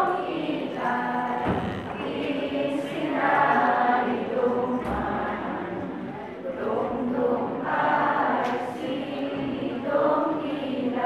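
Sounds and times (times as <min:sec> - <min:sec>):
group singing a chant: 0:00.0 - 0:11.0
low thud: 0:01.4 - 0:02.2.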